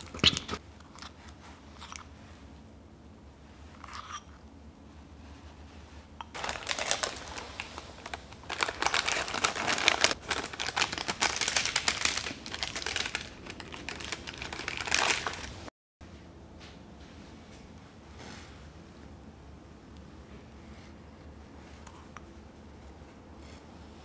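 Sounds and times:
baking paper crinkling: 0:06.3 - 0:15.7.

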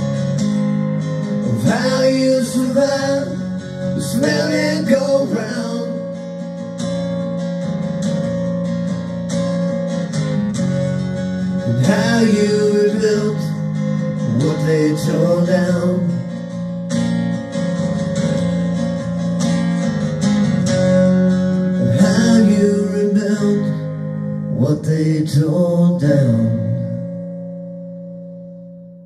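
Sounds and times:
strummed acoustic guitar song: 0:00.0 - 0:29.0.

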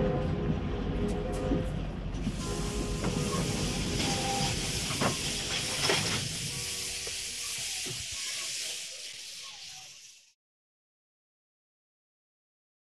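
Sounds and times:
wind hiss: 0:02.2 - 0:10.4
bicycle tyres rolling on asphalt: 0:04.3 - 0:10.4.

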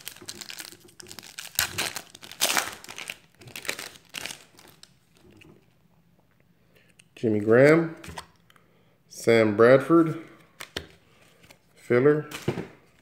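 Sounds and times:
foil wrapper crinkling: 0:00.0 - 0:05.2.

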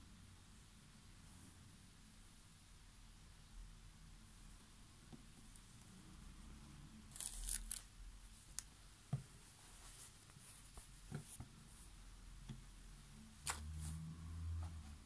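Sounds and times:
cloth scraping: 0:09.4 - 0:11.8
hands rustling folded towels: 0:09.4 - 0:11.8.

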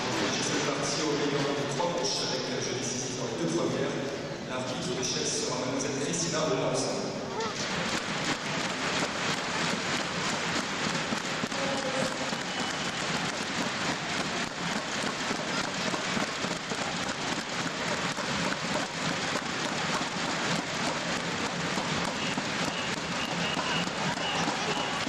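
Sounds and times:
crowd applauding: 0:07.6 - 0:25.0.

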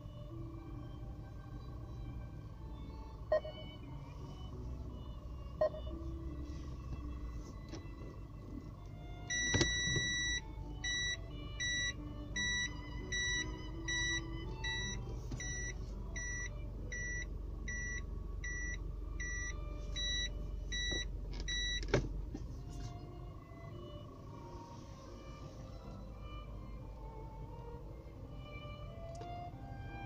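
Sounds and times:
car engine idling: 0:00.0 - 0:30.0
reverse warning beeps: 0:03.3 - 0:04.4, 0:05.6 - 0:06.2, 0:09.3 - 0:21.9
gear selector click: 0:09.3 - 0:10.3.

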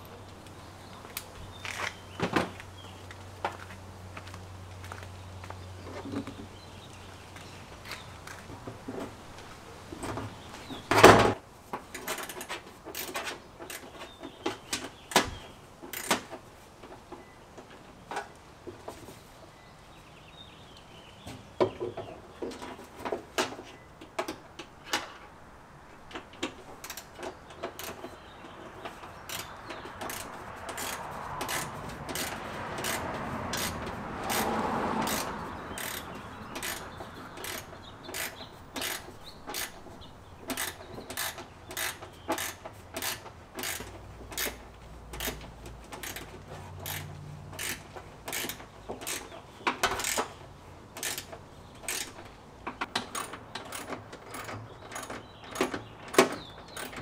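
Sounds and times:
ratchet wrench clicking: 0:15.9 - 0:16.2, 0:29.3 - 0:39.8, 0:40.5 - 0:50.3, 0:51.0 - 0:52.2.

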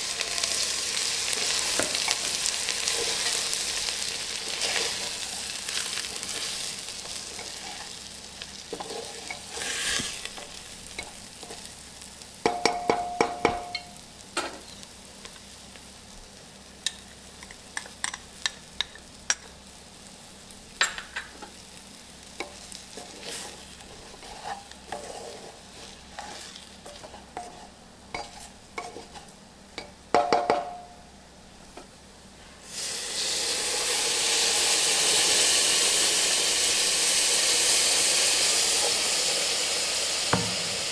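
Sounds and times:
loud steady hiss: 0:00.0 - 0:17.3, 0:31.4 - 0:40.9
food sizzling: 0:00.0 - 0:40.9
metal spoon scraping a pot: 0:23.0 - 0:29.3.

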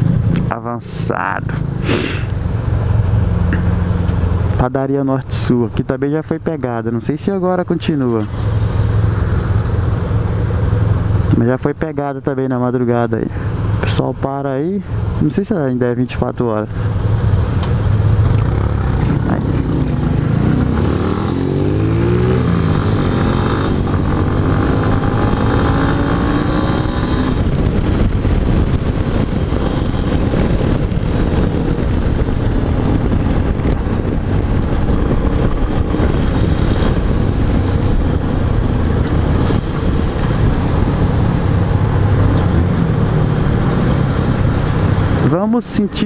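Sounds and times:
motorcycle engine accelerating: 0:16.8 - 0:45.2
wind noise on microphone: 0:17.3 - 0:45.2.

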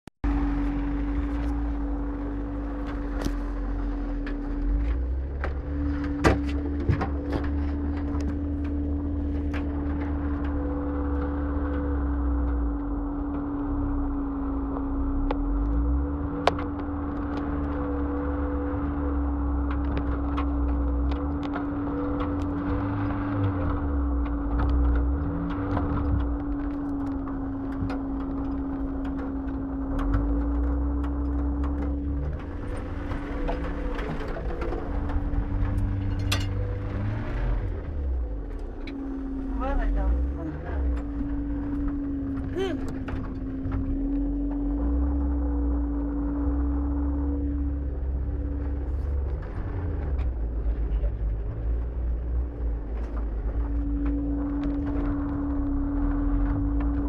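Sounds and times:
vehicle engine hum and rumble: 0:00.1 - 0:57.0
vehicle clicks and knocks: 0:01.3 - 0:11.9.

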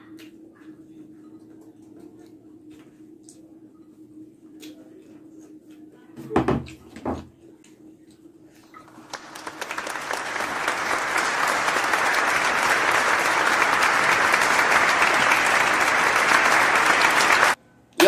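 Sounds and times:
crowd applause: 0:08.8 - 0:17.6.

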